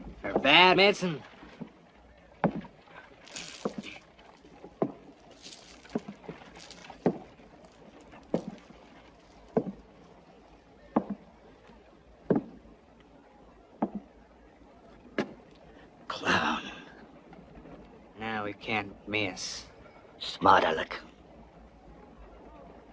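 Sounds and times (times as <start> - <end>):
heavy footsteps on wooden floorboards: 0.0 - 0.7, 2.4 - 2.8, 4.6 - 7.3, 8.2 - 8.8, 9.5 - 9.8, 10.9 - 11.2, 12.3 - 12.6.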